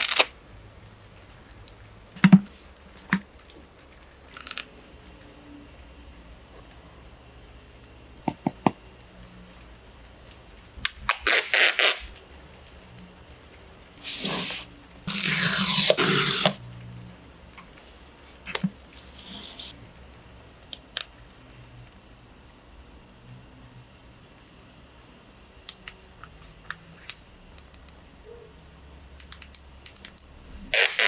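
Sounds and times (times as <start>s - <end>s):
packaging scraping and peeling: 15.1s - 16.6s.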